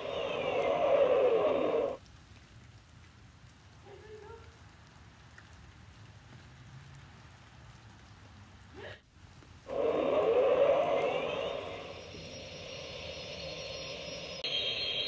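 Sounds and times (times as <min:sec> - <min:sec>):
spaceship engine rush: 0:00.0 - 0:02.0, 0:09.7 - 0:15.0
faint outdoor hum: 0:00.0 - 0:15.0.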